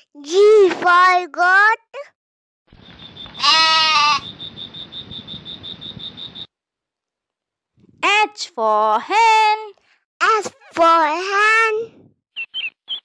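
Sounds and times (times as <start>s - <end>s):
high repeating chirp: 2.8s - 6.5s, 12.4s - 13.0s
goat bleating: 3.3s - 4.3s.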